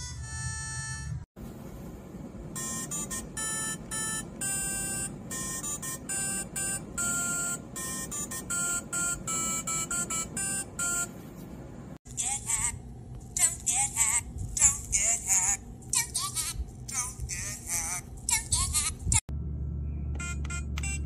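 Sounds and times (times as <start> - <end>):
low steady hum: 0.0 - 21.0
electronic beeping notes: 2.6 - 11.1.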